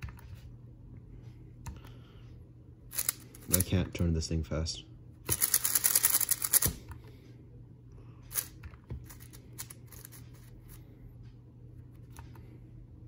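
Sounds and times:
puzzle cube clacking turns: 5.3 - 6.8.

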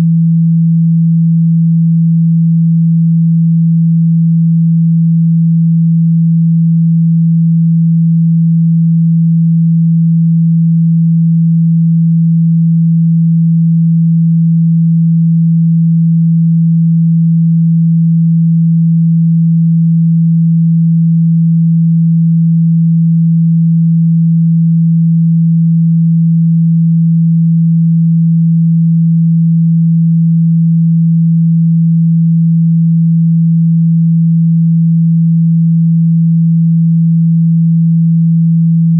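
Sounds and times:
low sine-wave test tone: 0.0 - 38.9.

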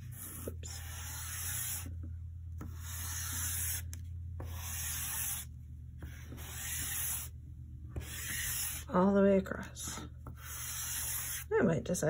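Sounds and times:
chalk pastel scratching on paper: 0.0 - 1.9, 2.6 - 3.8, 4.4 - 7.3, 8.0 - 8.9, 10.3 - 11.5
low steady hum: 0.0 - 12.0.

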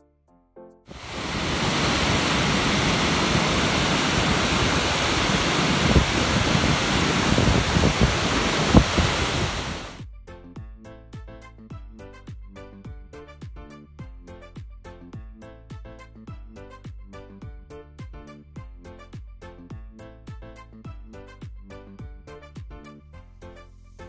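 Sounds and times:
waterfall roaring: 0.9 - 10.0
wind thumping on microphone: 0.9 - 10.0
background music: 10.0 - 24.0.

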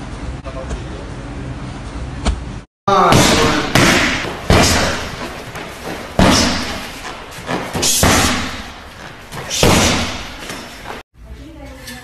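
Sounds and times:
heavy echoing thuds: 2.9 - 11.0.

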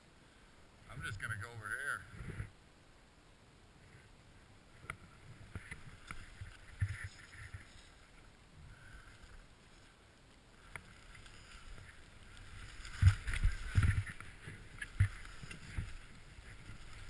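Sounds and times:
skis swishing through powder snow: 10.6 - 17.0.

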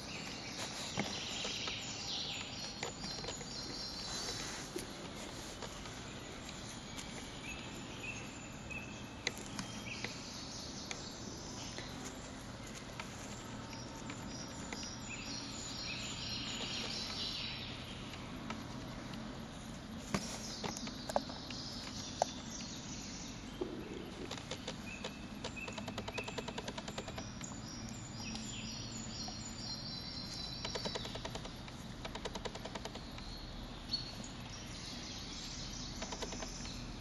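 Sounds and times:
small birds chirping: 0.0 - 37.0
woodland background noise: 0.0 - 37.0
sharp clicks: 24.1 - 28.5, 30.6 - 33.3, 35.9 - 36.8.

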